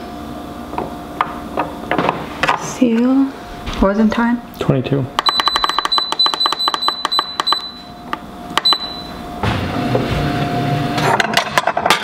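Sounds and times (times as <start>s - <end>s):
control panel beeping: 5.2s - 9.2s.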